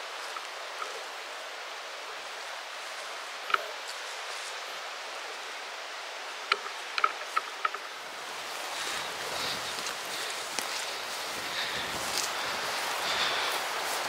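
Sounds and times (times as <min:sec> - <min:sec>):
footsteps through dry grass: 0:00.0 - 0:01.6, 0:02.2 - 0:05.1, 0:06.7 - 0:14.0
wind hiss: 0:00.0 - 0:14.0
wind rumble on microphone: 0:11.2 - 0:14.0.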